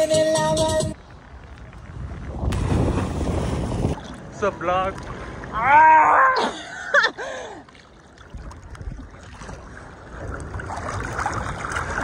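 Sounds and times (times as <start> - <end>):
sea water lapping and splashing: 1.0 - 12.0
person shouting: 5.6 - 6.5.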